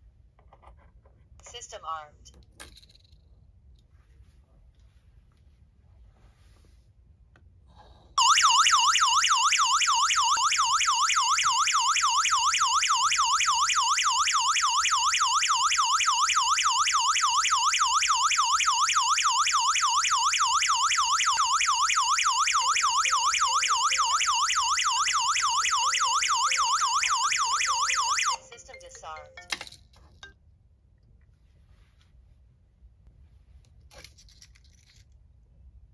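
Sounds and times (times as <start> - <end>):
alarm siren warbling: 8.2 - 29.3.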